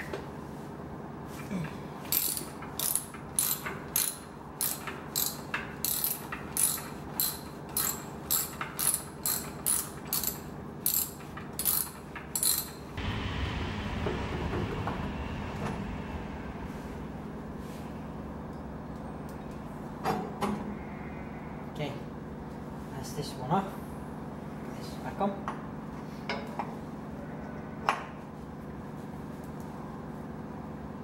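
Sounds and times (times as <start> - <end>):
ratchet wrench clicking: 2.1 - 12.8
low rumble: 12.9 - 20.0.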